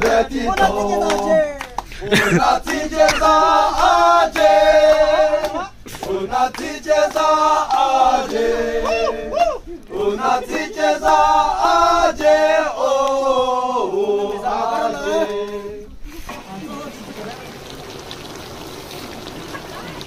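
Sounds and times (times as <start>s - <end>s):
hand claps: 0.0s - 8.5s, 10.5s - 11.2s
men singing in chorus: 0.0s - 16.0s.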